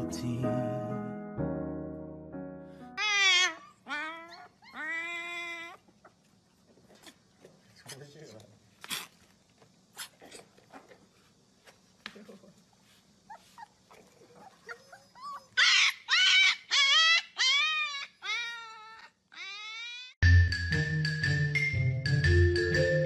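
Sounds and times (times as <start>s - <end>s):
dog whimpering: 3.0s - 6.2s, 13.3s - 20.2s.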